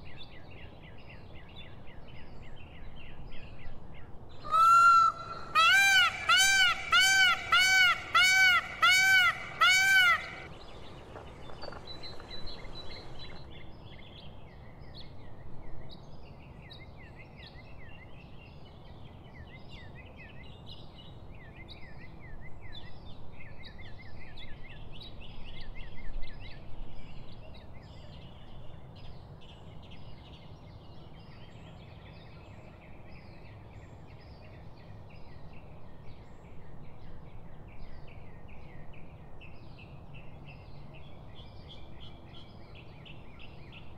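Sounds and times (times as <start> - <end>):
low background noise: 0.0 - 43.9
peafowl call: 4.4 - 13.4
small birds chirping: 5.0 - 13.6.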